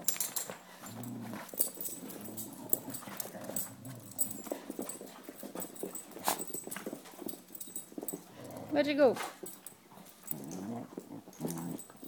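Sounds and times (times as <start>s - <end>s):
dogs scuffling: 0.0s - 12.0s
claws clicking on floor: 9.3s - 12.0s.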